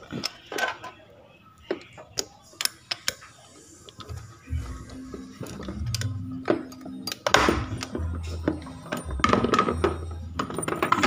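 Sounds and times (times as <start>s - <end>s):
plastic connectors clicking: 1.6s - 3.3s, 5.4s - 8.0s.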